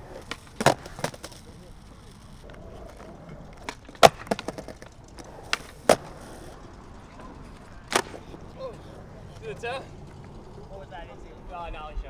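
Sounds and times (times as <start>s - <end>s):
skateboard clacking on concrete: 0.0s - 10.8s.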